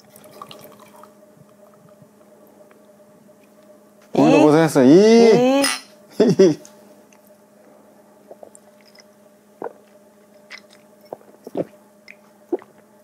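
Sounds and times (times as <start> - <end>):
faint steady hum: 0.0 - 13.0
person swallowing beer: 8.2 - 8.8, 9.6 - 9.9, 10.5 - 12.8.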